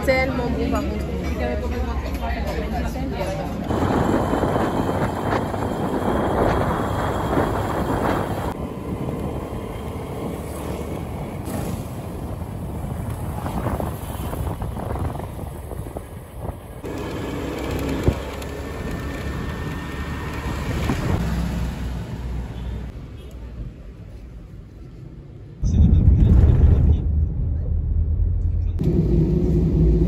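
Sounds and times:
engine running: 3.7s - 12.0s, 16.7s - 21.2s, 28.0s - 30.0s
wind buffeting microphone: 3.7s - 16.9s.

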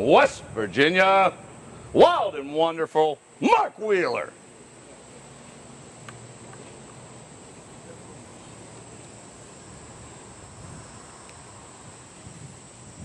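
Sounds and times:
high-pitched insect trill: 0.0s - 13.0s
soft even hiss: 0.0s - 13.0s
faint small clicks: 6.0s - 7.0s, 11.2s - 11.4s.

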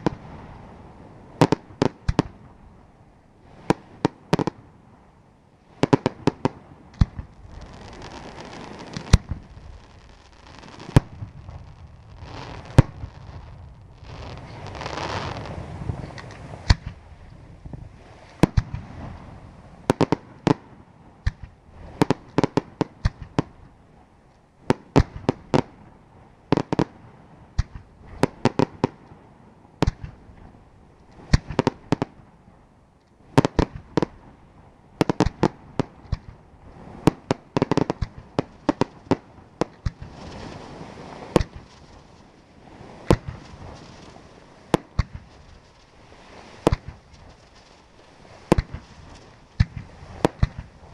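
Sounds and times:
fireworks bangs: 5.8s - 20.6s, 35.0s - 50.9s
low rumbling: 9.2s - 18.0s.

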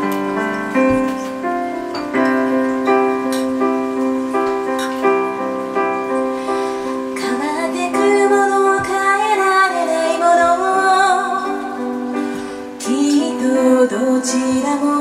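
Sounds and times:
sustained keyboard chords: 0.0s - 15.0s
woman singing slow song: 7.0s - 15.0s.

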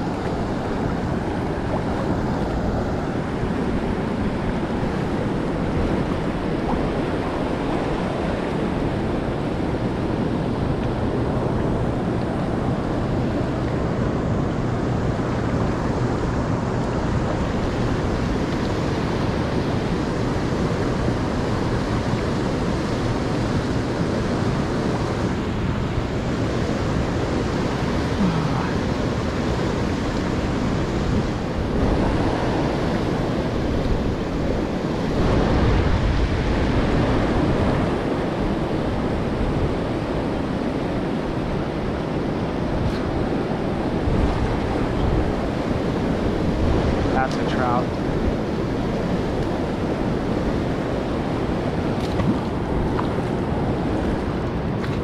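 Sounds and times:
wind on microphone: 0.0s - 55.0s
river rushing over rocks: 26.0s - 55.0s.

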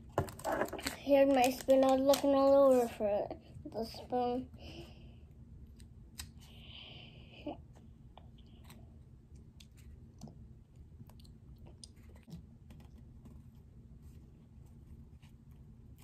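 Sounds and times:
quiet eating sounds: 7.6s - 13.0s.

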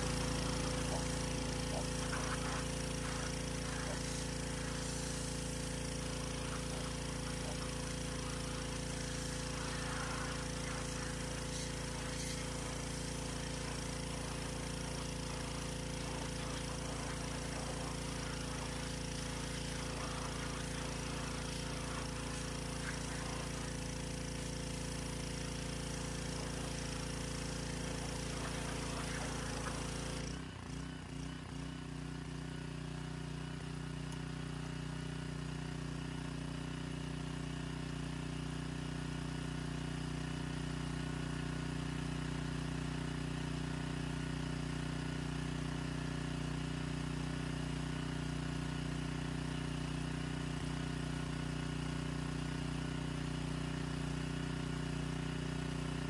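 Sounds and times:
water jet spraying: 0.0s - 30.3s
small engine running: 0.0s - 56.0s.

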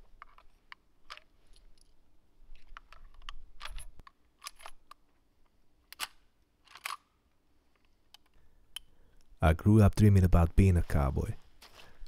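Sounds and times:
rifle loading gate clicks: 5.9s - 7.1s.

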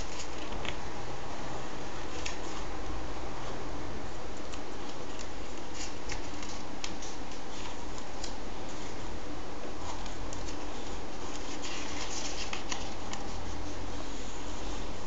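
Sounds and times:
paper pages rustling: 0.0s - 0.9s, 2.0s - 2.7s, 4.5s - 9.1s, 9.7s - 13.9s.

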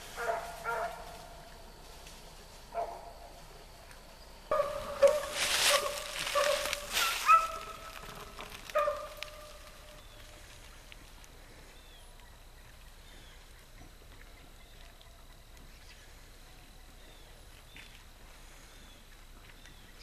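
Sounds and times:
hounds baying: 0.0s - 1.5s, 2.7s - 3.3s, 4.5s - 10.0s.

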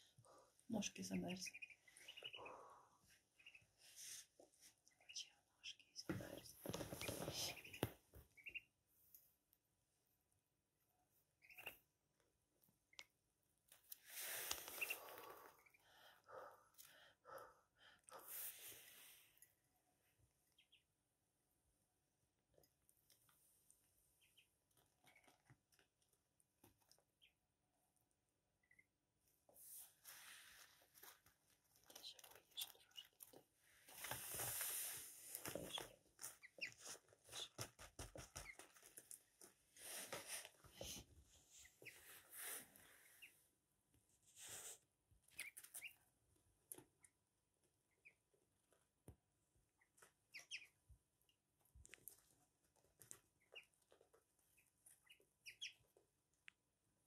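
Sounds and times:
ducklings pecking corn: 0.1s - 10.3s, 11.1s - 42.3s, 44.0s - 57.0s
duckling peeping: 0.7s - 3.8s, 7.0s - 8.8s, 11.2s - 12.1s, 14.6s - 15.9s, 20.4s - 21.0s, 24.2s - 25.6s, 26.6s - 27.4s, 28.6s - 28.9s, 31.8s - 33.4s, 35.6s - 37.7s, 45.2s - 46.2s, 46.9s - 48.4s, 49.7s - 51.4s, 53.2s - 56.2s.

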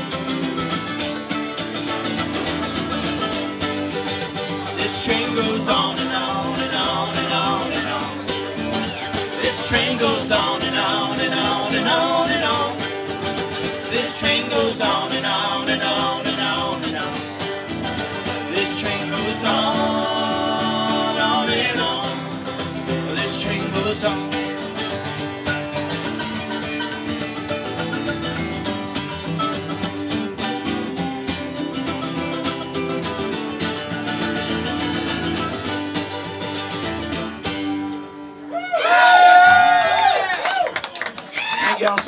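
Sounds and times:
mandolin: 0.0s - 38.5s
strummed acoustic guitars: 0.0s - 38.5s
voices singing together: 4.4s - 24.8s.

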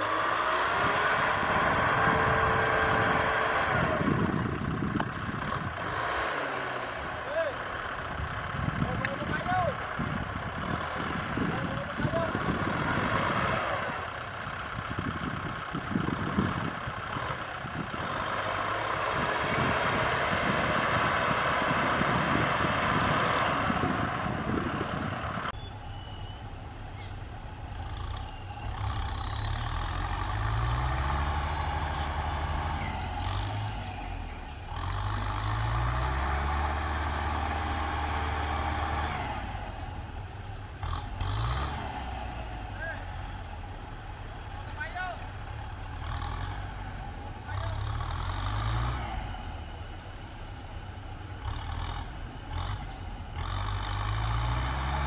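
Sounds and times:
tyres grinding through mud: 0.0s - 25.6s, 26.8s - 55.0s
tractor diesel engine: 0.0s - 55.0s
birds chirping: 25.1s - 55.0s.

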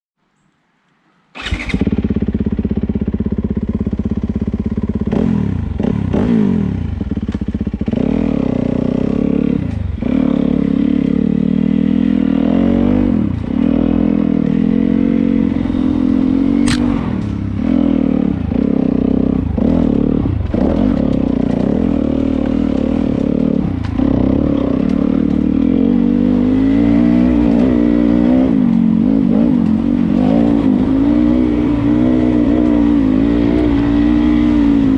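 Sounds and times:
dirt bike engine revving: 1.4s - 34.9s
sharp click: 16.6s - 17.4s.

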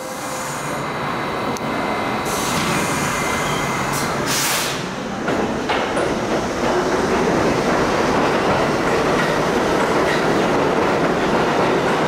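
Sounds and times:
subway train humming and rumbling: 0.0s - 12.0s
air hiss: 2.2s - 4.9s.

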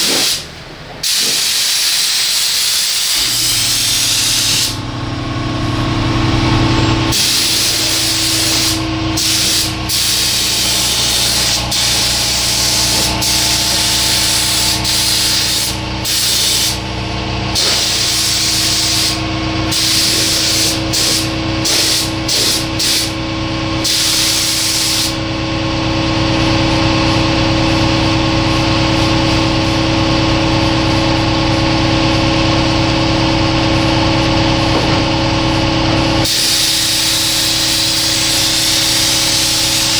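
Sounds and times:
paint spray gun hissing: 0.0s - 0.4s, 1.0s - 4.8s, 7.1s - 16.8s, 17.5s - 23.2s, 23.8s - 25.2s, 36.2s - 39.9s
steady motor hum: 2.6s - 39.9s.

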